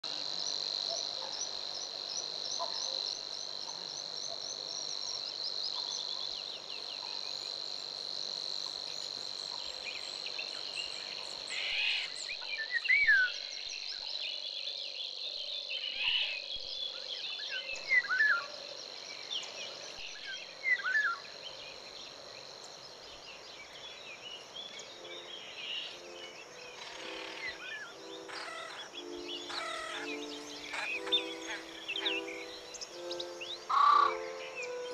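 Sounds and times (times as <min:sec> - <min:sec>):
bird calls and chirps: 0:19.2 - 0:34.9
high-pitched insect drone: 0:24.8 - 0:34.9.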